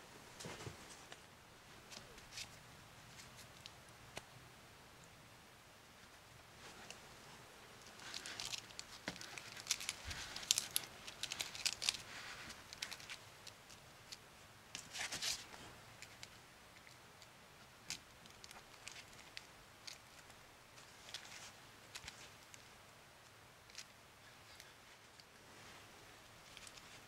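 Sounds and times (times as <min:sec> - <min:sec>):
lettuce leaf crackling: 0:07.8 - 0:14.2.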